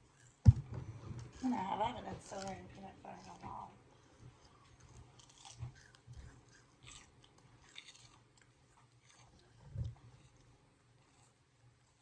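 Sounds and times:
low thump: 0.4 - 0.9
celery crunching: 1.1 - 3.5, 4.4 - 10.5.

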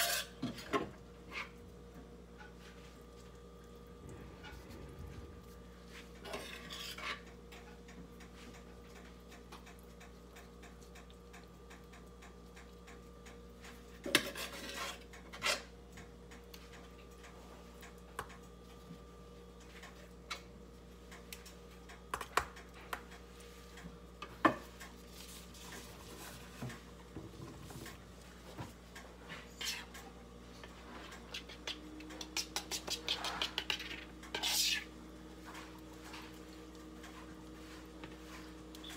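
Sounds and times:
metal spoon scraping foil pan: 0.0 - 0.4, 6.3 - 7.2, 14.1 - 15.7, 32.7 - 34.9
faint steady hum: 0.0 - 38.9.

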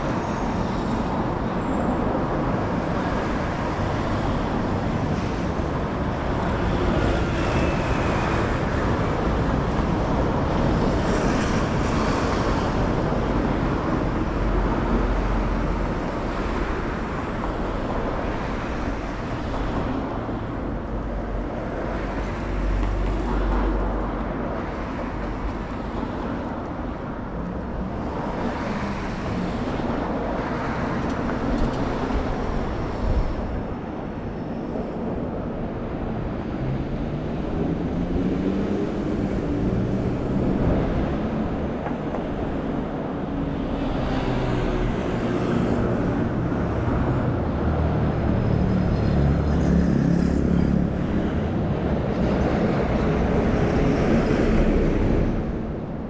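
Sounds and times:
traffic rumble: 0.0 - 56.0.

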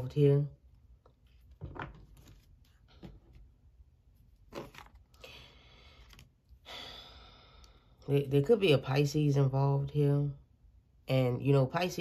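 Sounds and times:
cards rustling: 4.4 - 5.2.

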